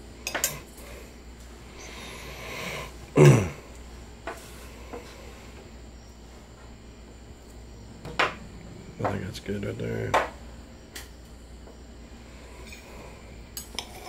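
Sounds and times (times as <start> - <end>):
breathy intake: 1.8 - 3.6
person coughing: 3.2 - 3.6.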